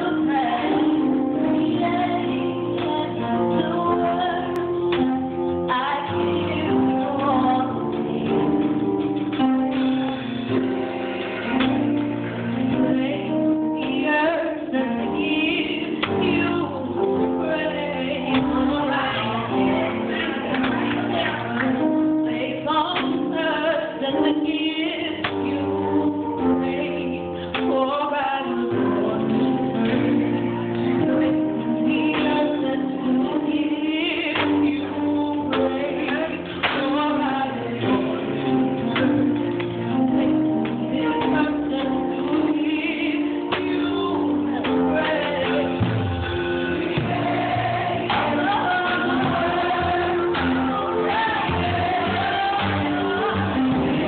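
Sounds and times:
woman singing lead: 0:00.0 - 0:54.0
choir singing in harmony: 0:10.2 - 0:27.4, 0:28.1 - 0:54.0.

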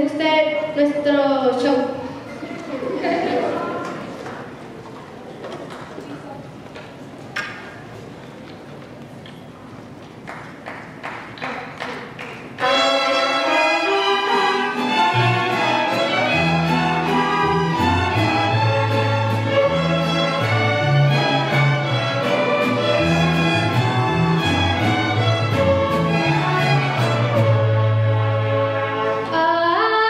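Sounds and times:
violins playing: 0:12.6 - 0:29.9.

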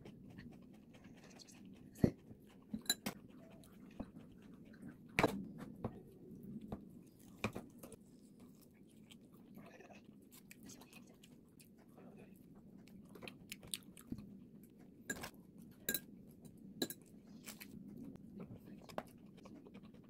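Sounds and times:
noodles slurped and chewed: 0:00.0 - 0:05.2.

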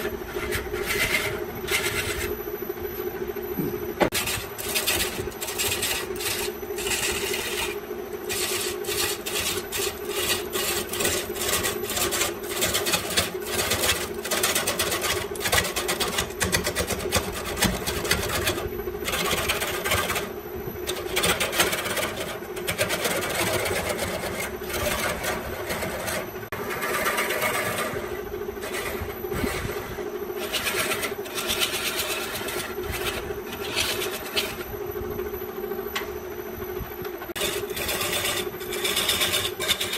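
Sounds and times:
chisel scraping wood: 0:00.0 - 0:02.4, 0:04.0 - 0:20.3, 0:20.9 - 0:34.7, 0:37.4 - 0:39.9
wood lathe motor hum: 0:00.0 - 0:36.4, 0:37.0 - 0:39.9.

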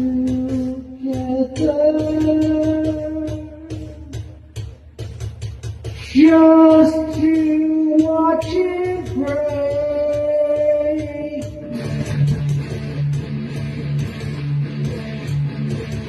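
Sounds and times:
person singing long notes: 0:00.0 - 0:04.4, 0:06.0 - 0:12.1
electric guitar: 0:08.0 - 0:16.0.

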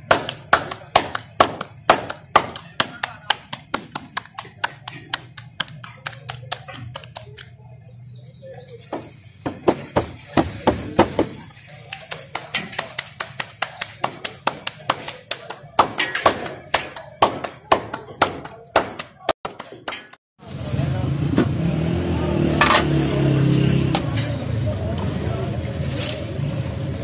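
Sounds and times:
dough slapped between palms: 0:00.0 - 0:07.5.

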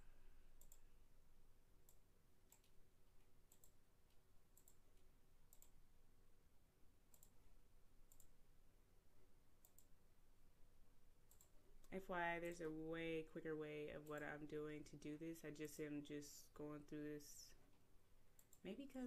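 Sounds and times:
faint mouse clicks: 0:00.6 - 0:00.8, 0:01.8 - 0:05.8, 0:07.1 - 0:07.4, 0:08.1 - 0:08.4, 0:09.6 - 0:10.0, 0:11.3 - 0:12.0, 0:18.4 - 0:19.0.

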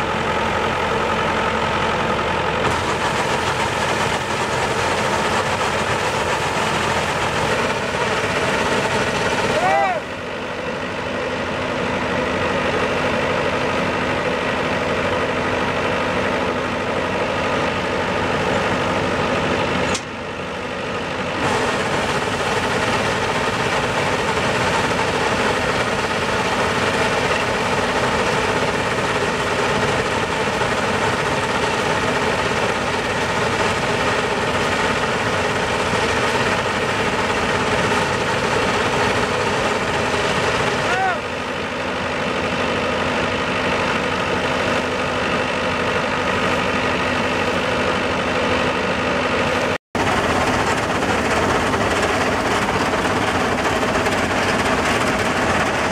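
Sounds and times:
combine harvester running: 0:00.0 - 0:55.9.

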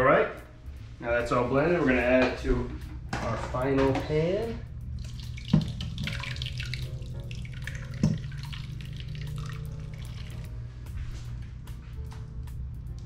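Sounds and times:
steady low hum: 0:00.0 - 0:13.0
thick sauce pouring: 0:04.9 - 0:10.5.

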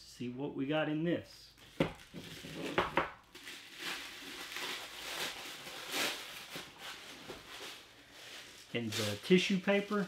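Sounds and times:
tissue paper rustling: 0:02.0 - 0:10.0.

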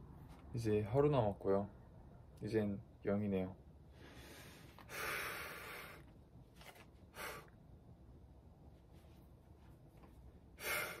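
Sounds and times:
man breathing forcefully: 0:03.9 - 0:06.1, 0:07.1 - 0:07.6, 0:10.5 - 0:11.0.

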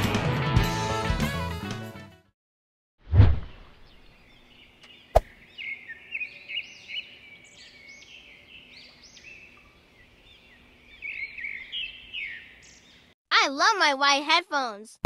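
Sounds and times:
birds chirping: 0:03.5 - 0:13.1.

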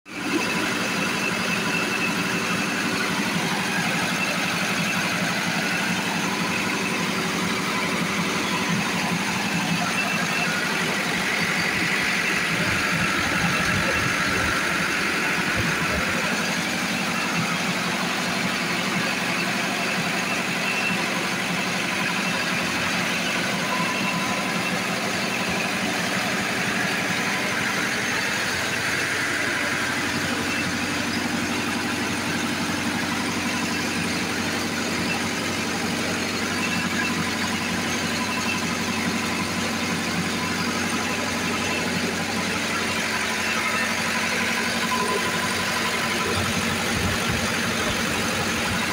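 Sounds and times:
diesel generator running: 0:00.0 - 0:48.9.

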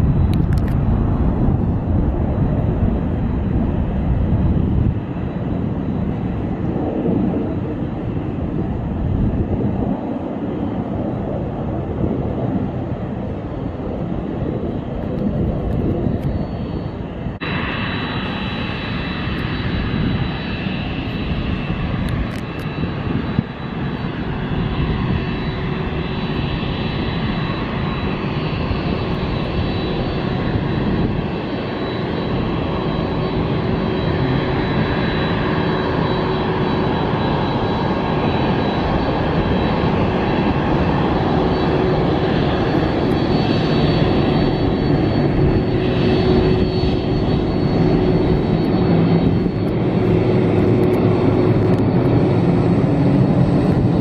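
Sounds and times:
jet engines rumbling and whining: 0:00.0 - 0:54.0.

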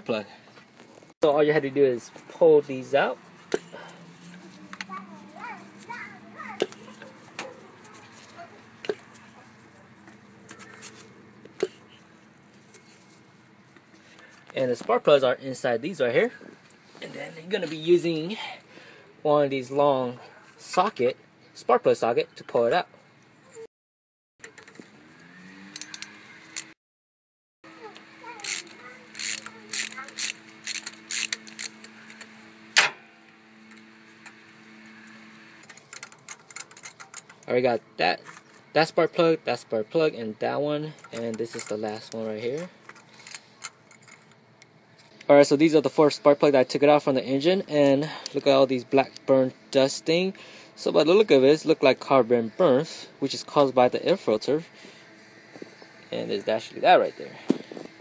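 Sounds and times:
tools ticking and rattling: 0:35.6 - 0:37.5.

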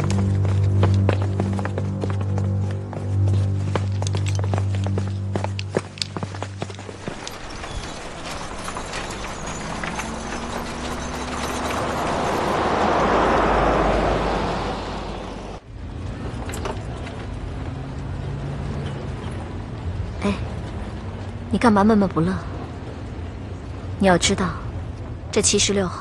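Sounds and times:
car driving past: 0:06.8 - 0:16.4.

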